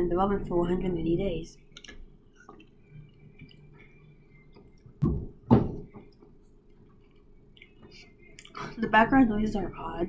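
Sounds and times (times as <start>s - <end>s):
faint room noise: 0.0s - 10.0s
dull thumps: 5.0s - 6.1s.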